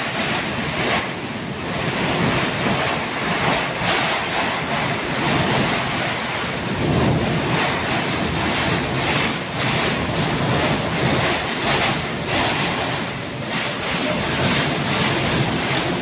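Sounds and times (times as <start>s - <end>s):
heavy rain: 0.0s - 16.0s
strong wind gusts: 0.0s - 16.0s
wind buffeting microphone: 0.0s - 16.0s.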